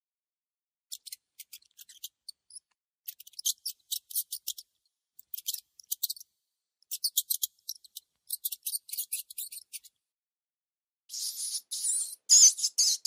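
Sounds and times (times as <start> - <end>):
mouse squeaking: 0.9 - 6.3, 6.9 - 10.0, 11.1 - 13.0.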